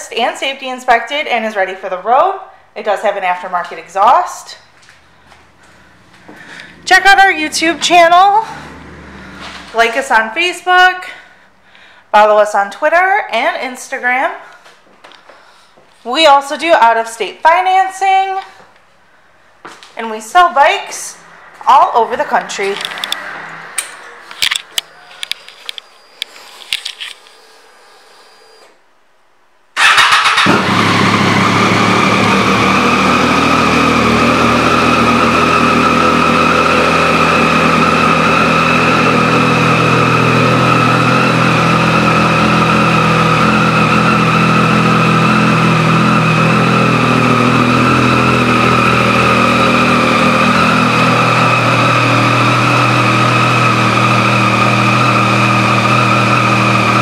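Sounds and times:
motorcycle engine starting and idling: 4.7 - 11.6, 21.2 - 28.8, 29.8 - 57.0
clicks: 22.6 - 27.4.

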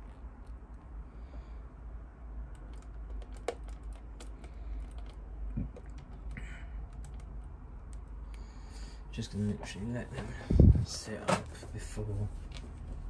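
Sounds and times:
low steady hum: 0.0 - 13.0
plastic parts clicking and tapping: 2.6 - 8.1.

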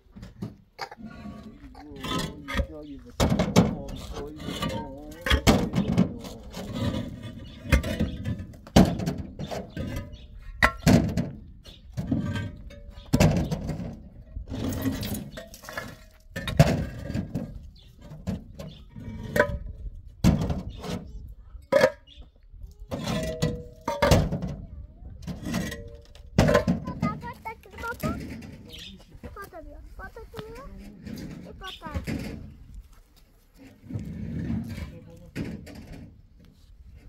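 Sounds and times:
sharp knocks and thuds: 2.1 - 21.1.

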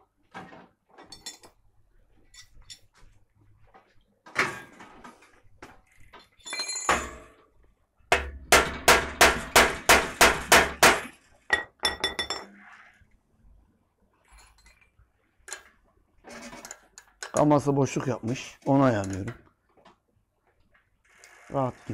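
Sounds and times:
hammer striking metal: 8.1 - 12.3.

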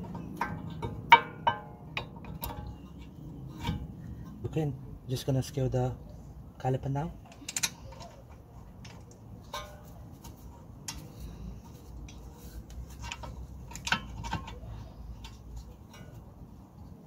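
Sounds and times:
sharp metallic knocks: 0.0 - 2.9
metal clicks and clinks: 7.2 - 9.9.

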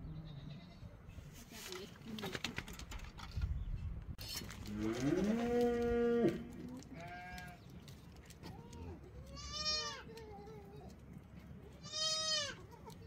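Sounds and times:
light clicks and rustles: 4.2 - 9.4
goats bleating: 9.2 - 10.7, 11.8 - 13.0.

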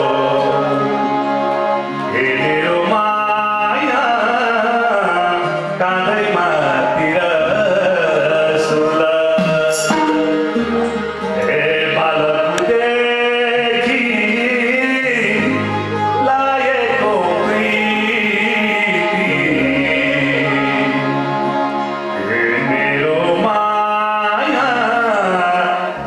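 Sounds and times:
man singing: 0.0 - 1.1, 2.0 - 26.0
acoustic guitar: 0.0 - 26.0
harmonium: 0.0 - 26.0
tabla drums: 9.3 - 11.3.

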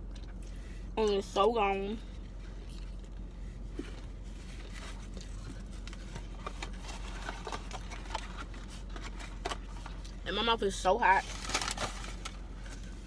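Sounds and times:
steady low hum: 0.0 - 13.0
chewing: 2.5 - 8.2.

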